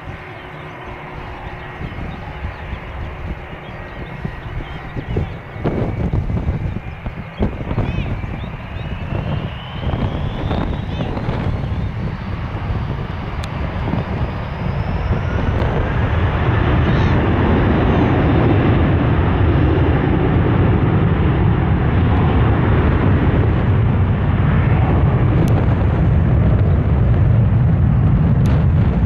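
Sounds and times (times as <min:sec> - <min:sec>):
jet engines on runway: 0:00.0 - 0:29.0.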